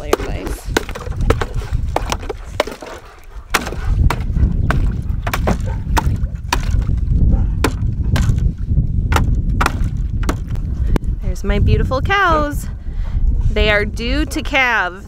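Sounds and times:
low rumble: 3.3s - 15.0s.

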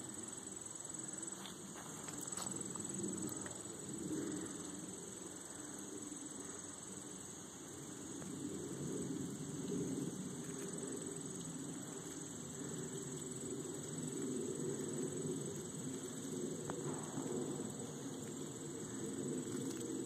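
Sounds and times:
high-pitched insect chorus: 0.0s - 20.0s.

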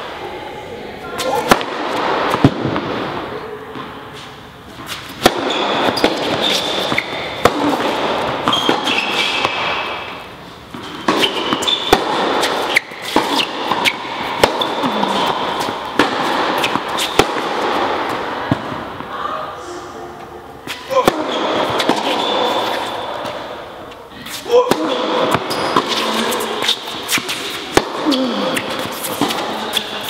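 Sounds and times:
racquets striking tennis ball: 1.2s - 4.0s, 4.8s - 19.1s, 20.6s - 30.0s
ball bouncing: 1.4s - 3.1s, 5.2s - 19.1s
shoe squeaks on court: 4.9s - 7.4s, 8.4s - 10.0s, 10.8s - 11.9s, 12.5s - 14.0s, 25.4s - 27.6s.

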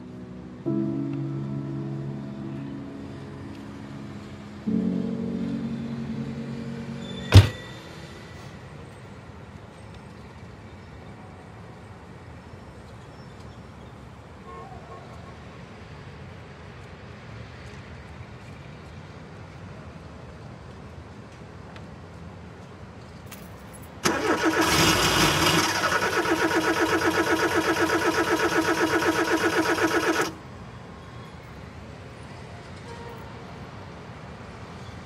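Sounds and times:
low rumble of traffic: 0.0s - 35.0s
held musical chord: 0.3s - 8.5s
sharp loud thud: 7.2s - 7.8s.

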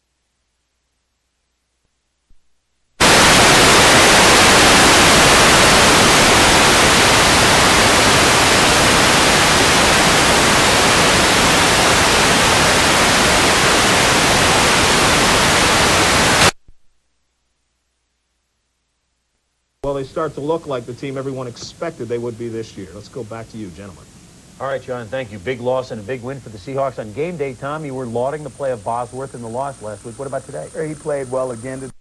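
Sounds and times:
television static hiss: 0.0s - 32.0s.

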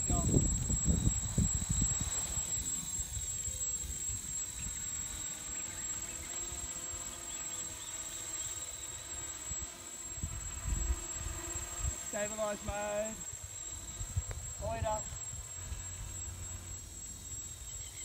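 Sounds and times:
wind on microphone: 0.0s - 4.9s, 10.2s - 16.2s
drone propellers whining: 0.0s - 18.0s.

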